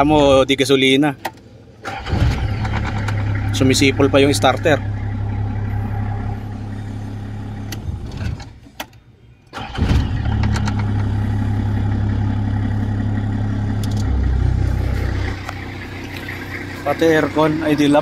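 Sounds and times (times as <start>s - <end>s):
car engine idling: 0.0s - 18.0s
starter cranking: 1.2s - 8.6s, 9.6s - 12.8s.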